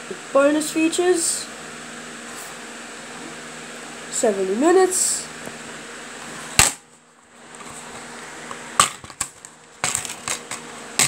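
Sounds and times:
fan humming: 0.0 - 11.0.

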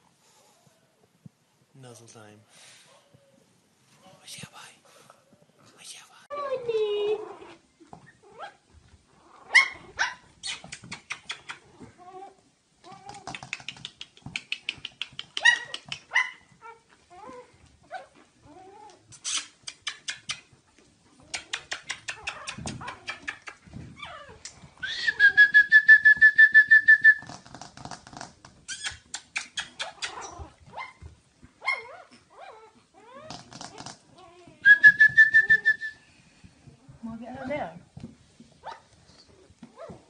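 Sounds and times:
puppies whimpering and squeaking: 6.8 - 8.6, 15.3 - 20.6, 21.2 - 25.3, 28.6 - 34.6
puppy high-pitched whines: 6.8 - 8.6, 15.4 - 19.6, 21.2 - 25.5, 28.7 - 36.0, 38.6 - 40.0.

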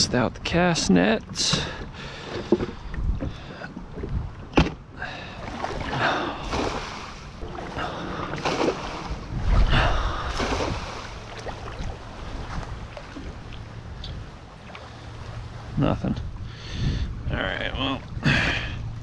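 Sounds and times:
wet line hauled in: 0.8 - 16.4
water splashing and dripping: 5.4 - 15.4
net splashing into water: 5.5 - 9.7, 10.3 - 12.0.

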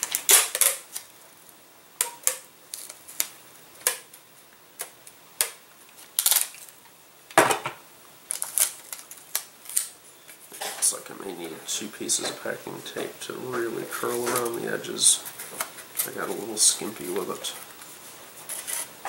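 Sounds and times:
packing tape pulled and torn: 0.0 - 1.2, 2.0 - 4.2, 4.8 - 6.8, 8.2 - 10.4, 17.6 - 19.0.

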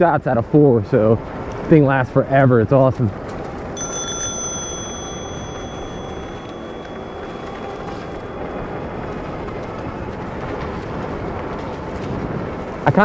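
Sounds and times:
high thin ringing tone: 3.8 - 10.2.

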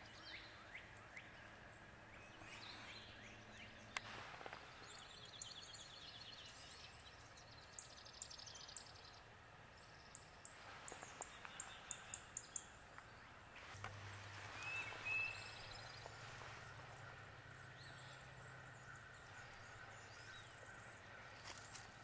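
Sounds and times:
birds chipping: 0.0 - 22.0
faint low hum: 0.0 - 22.0
bird whistled notes: 14.4 - 16.0.

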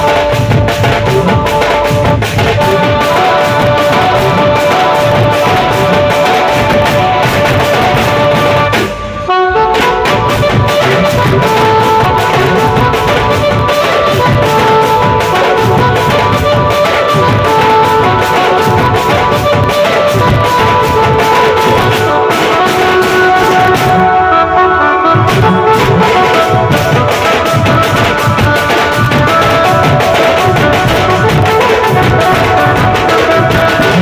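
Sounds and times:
double-headed drum beat: 0.0 - 24.2, 25.2 - 34.0
folk dance band playing: 0.0 - 34.0.

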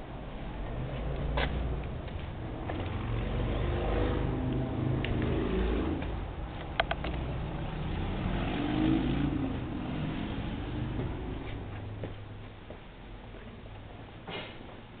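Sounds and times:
steady low rumble: 0.0 - 8.1
vehicle engine speeding up: 0.5 - 12.0
sharp clicks: 6.6 - 7.2.

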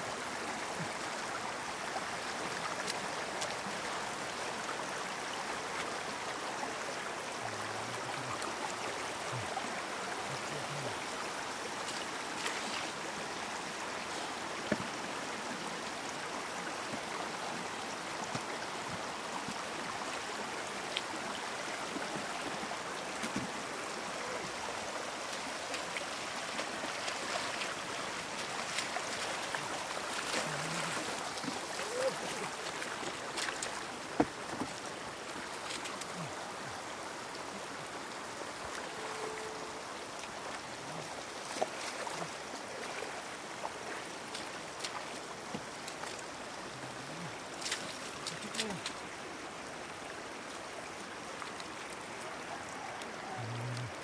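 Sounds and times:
water running over stony road: 0.0 - 54.0
water splashes and knocks: 11.8 - 13.0, 14.6 - 15.0, 18.2 - 19.6, 21.9 - 23.6, 25.7 - 36.2, 43.9 - 46.2.

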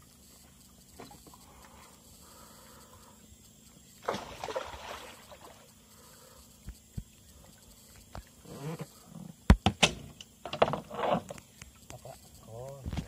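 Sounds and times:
fish thrashing and splashing: 4.0 - 5.6.

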